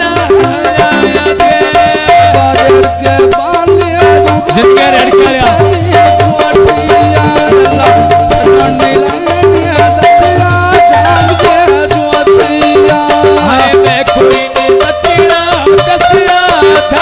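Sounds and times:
fast folk percussion: 0.0s - 17.0s
held melodic note: 10.7s - 12.0s.

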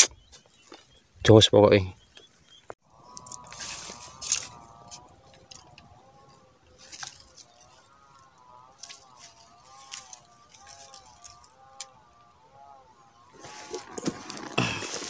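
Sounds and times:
fishing rod rustles and clicks: 3.0s - 7.8s, 8.7s - 12.0s, 13.4s - 15.0s.

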